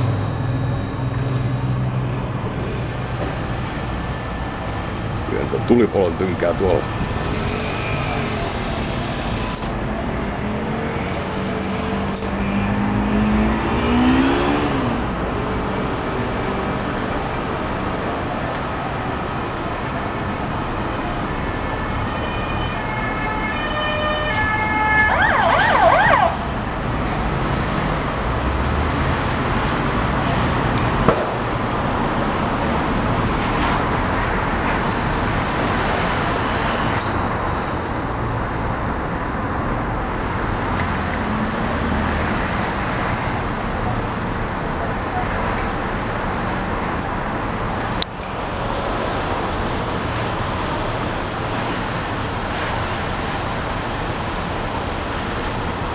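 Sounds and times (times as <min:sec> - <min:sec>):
road traffic noise: 0:00.0 - 0:55.9
vehicle speeding up: 0:07.1 - 0:16.8
emergency siren: 0:07.2 - 0:14.7, 0:20.8 - 0:26.8.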